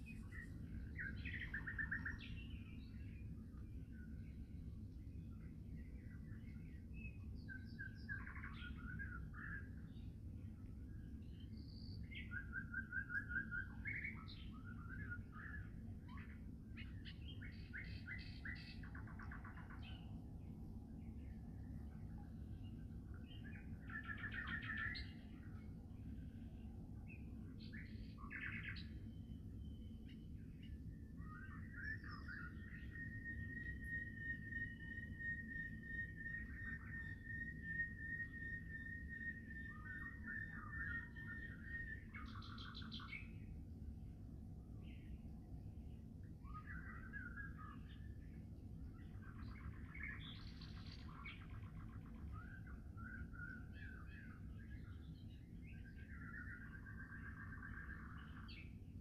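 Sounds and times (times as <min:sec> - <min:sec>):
songbird warbling: 0:00.0 - 0:02.6, 0:12.1 - 0:20.1, 0:23.2 - 0:25.5, 0:27.6 - 0:43.4, 0:46.4 - 0:48.1, 0:49.0 - 0:58.7
low background rumble: 0:00.0 - 0:12.3, 0:13.6 - 0:59.0
small birds chirping: 0:00.0 - 0:59.0.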